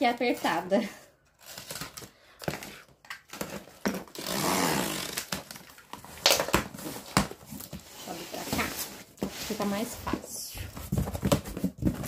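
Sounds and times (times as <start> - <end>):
box cutter slicing tape: 4.0 - 5.5.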